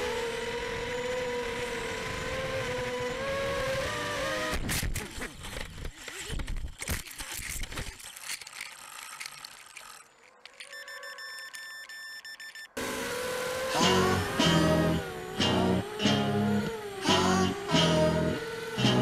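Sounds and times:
quadcopter motors whining: 0.0s - 19.0s.

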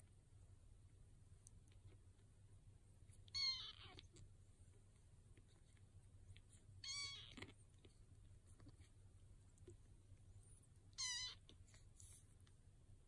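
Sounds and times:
kitten mewing: 3.3s - 4.0s, 6.8s - 7.5s, 11.0s - 11.4s.

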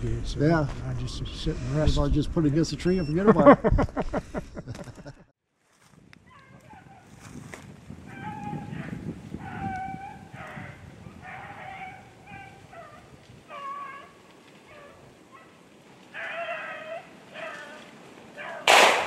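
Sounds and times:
beagles baying: 8.1s - 19.0s.

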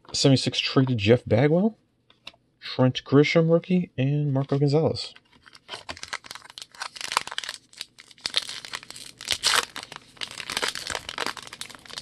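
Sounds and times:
plastic wrapper crinkling: 5.1s - 12.0s.

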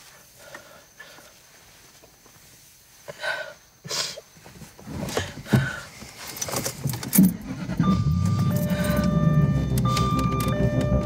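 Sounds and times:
knocks and rustles of handling: 4.4s - 7.3s
car engine starting and idling: 6.6s - 11.0s
held tones of music score: 7.4s - 11.0s.

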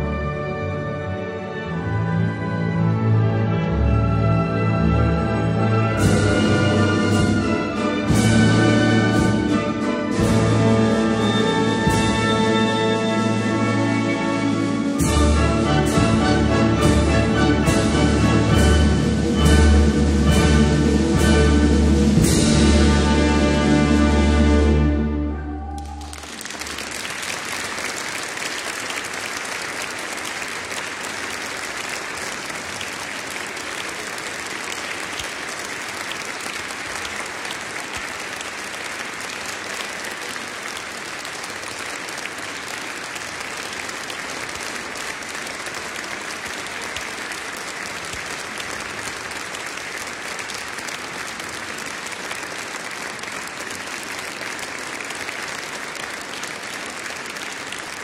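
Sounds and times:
audience applauding: 25.6s - 58.0s.

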